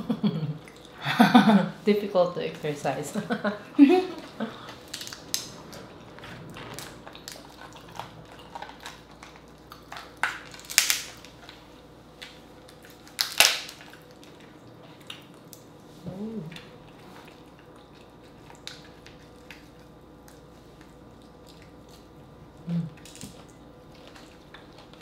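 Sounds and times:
crab shells cracking: 4.8s - 5.5s, 7.2s - 11.6s, 12.2s - 14.4s.

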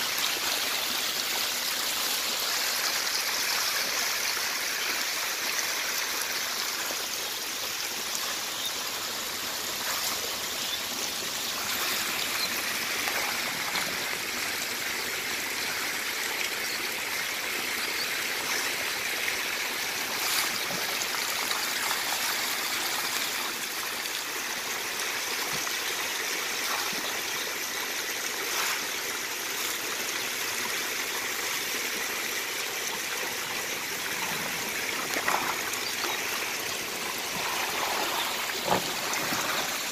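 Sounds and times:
crate pushed through water: 37.2s - 39.9s.

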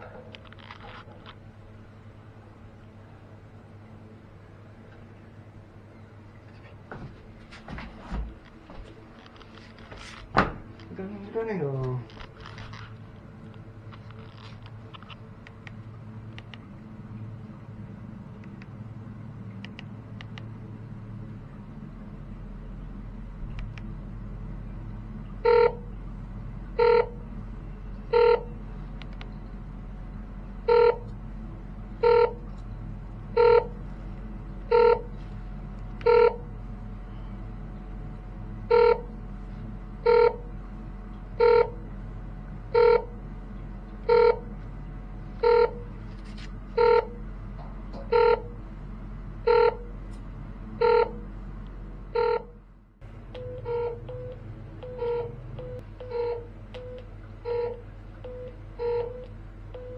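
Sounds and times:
steady low hum: 0.0s - 59.9s
meter beeping: 25.4s - 25.9s, 26.8s - 27.2s, 28.0s - 29.3s, 30.6s - 31.1s, 32.0s - 32.4s, 33.3s - 33.8s, 34.7s - 35.1s, 36.0s - 36.5s, 38.7s - 39.1s, 40.0s - 40.5s, 41.4s - 41.8s, 42.7s - 43.1s, 44.1s - 44.5s, 45.4s - 45.9s, 46.8s - 47.2s, 48.0s - 48.6s, 49.4s - 49.9s, 50.8s - 51.2s, 52.1s - 52.6s, 53.3s - 59.9s.

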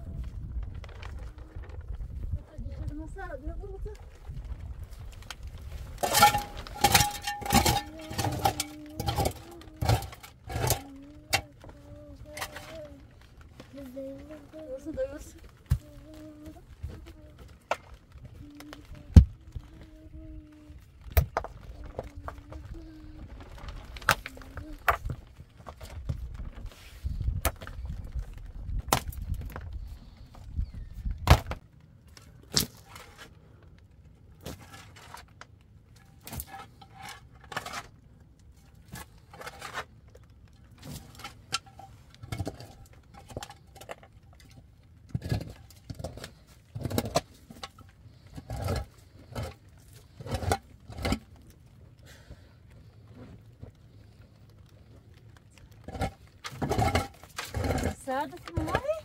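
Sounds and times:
low rumble: 0.0s - 6.8s
hard objects knocking and clinking: 6.0s - 11.5s.

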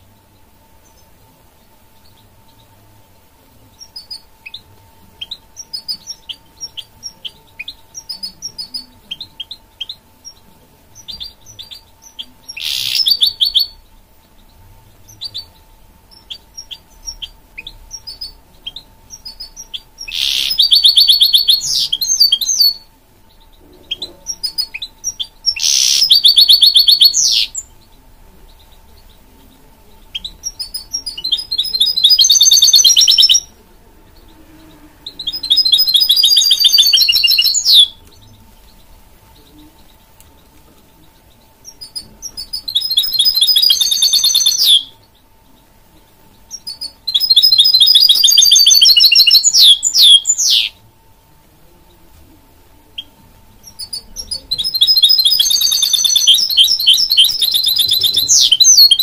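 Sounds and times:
bird chirps: 0.0s - 2.8s, 3.5s - 50.9s, 52.9s - 59.0s
fast trilling birdsong: 3.7s - 50.8s, 53.0s - 59.0s.

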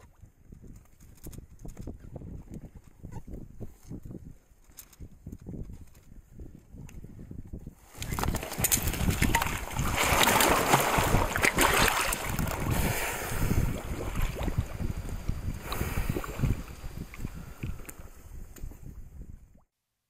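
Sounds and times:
water splashing and sloshing: 7.8s - 18.1s.

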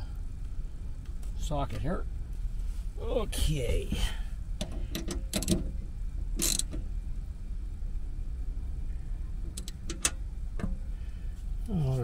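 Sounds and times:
low rumble: 0.0s - 12.0s
ratchet wrench clicking on metal: 4.6s - 5.6s, 6.4s - 6.8s.

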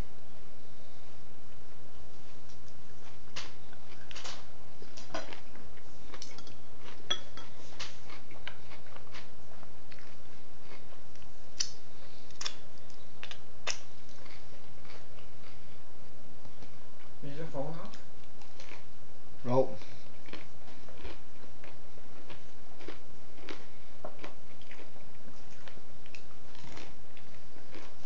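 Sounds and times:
steady low hum: 0.0s - 28.0s
cutlery clinking on a plate: 6.2s - 7.5s.

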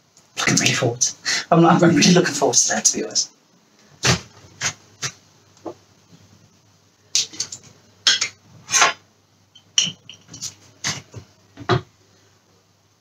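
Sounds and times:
jar lid clinking: 9.6s - 10.5s.

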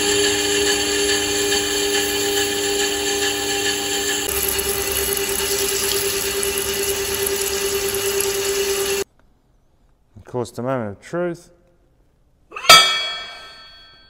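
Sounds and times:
lathe machine whine: 0.0s - 9.0s.

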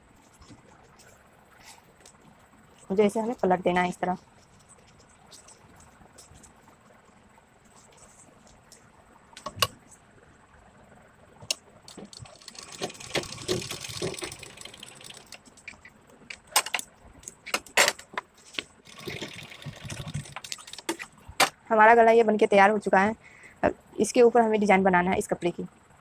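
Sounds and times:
sewing machine clicks and rattle: 11.9s - 15.8s, 18.8s - 21.0s.

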